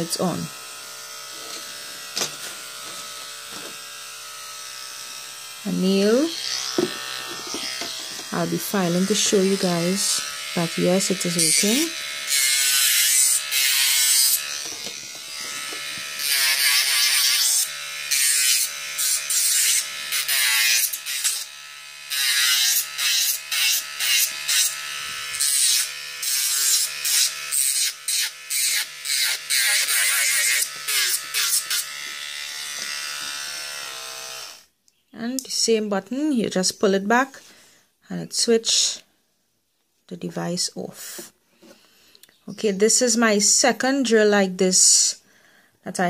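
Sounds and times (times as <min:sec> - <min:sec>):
nail drill motor humming: 0:00.6 - 0:34.6
sanding band grinding nail: 0:11.2 - 0:21.5, 0:22.1 - 0:32.2.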